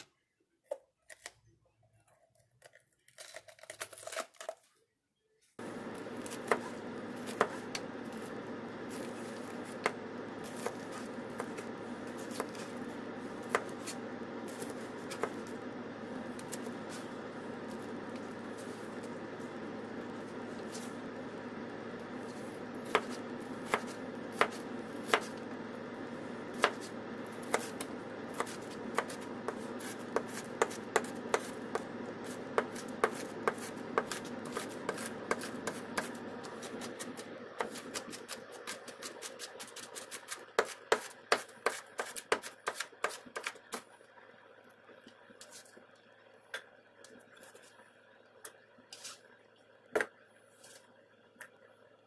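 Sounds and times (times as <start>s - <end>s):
knife chopping on plastic board: 6.2s - 8.3s, 8.9s - 15.6s, 22.8s - 25.4s, 26.5s - 43.8s.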